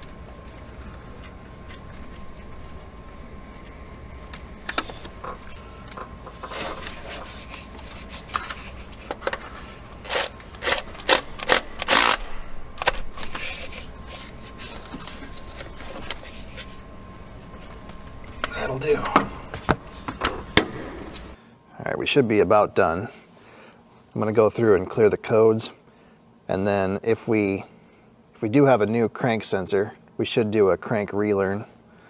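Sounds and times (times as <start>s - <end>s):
socket ratchet clicking: 10.0s - 12.2s.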